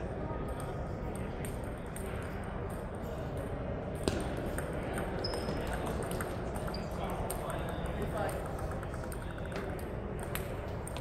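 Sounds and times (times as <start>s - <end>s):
table tennis ball clicking: 4.0s - 11.0s.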